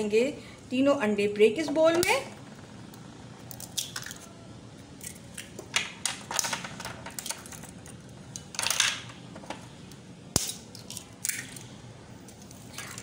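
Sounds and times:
eggs cracking against a glass bowl: 0:03.4 - 0:04.3.

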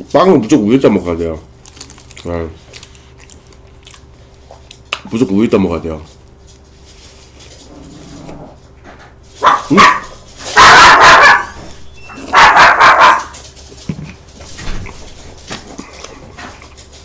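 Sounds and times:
dog barking: 0:09.4 - 0:11.6, 0:12.2 - 0:13.4.

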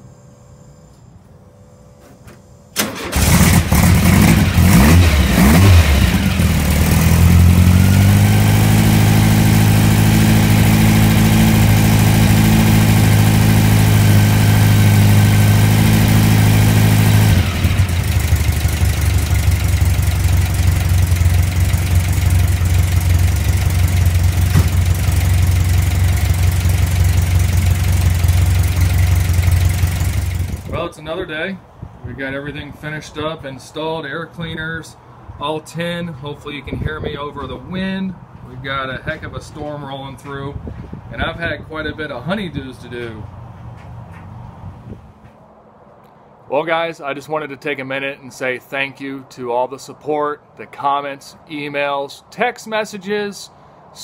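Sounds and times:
car engine starting and idling: 0:02.7 - 0:30.8.

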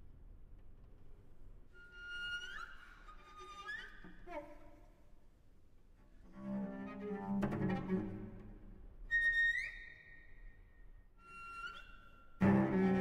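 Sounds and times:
cello high harmonic tones: 0:11.2 - 0:13.0
cello low bowed note: 0:12.4 - 0:13.0.

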